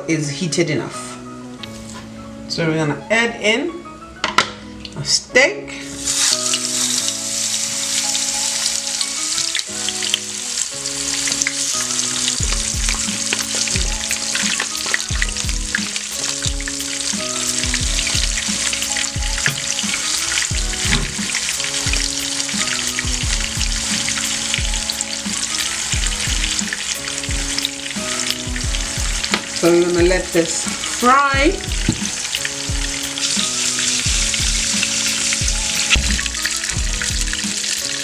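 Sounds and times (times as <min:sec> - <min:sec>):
oil sizzling and crackling: 0:05.8 - 0:38.0
background music with low beat: 0:11.4 - 0:38.0.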